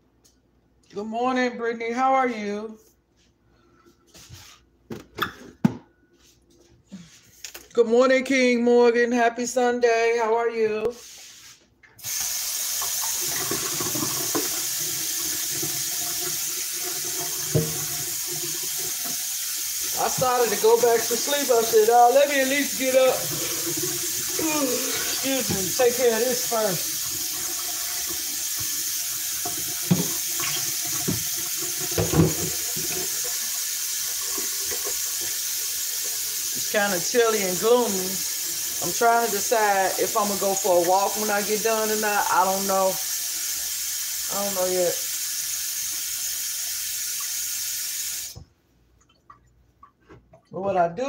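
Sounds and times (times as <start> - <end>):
tap water running into sink: 12.0 - 48.5.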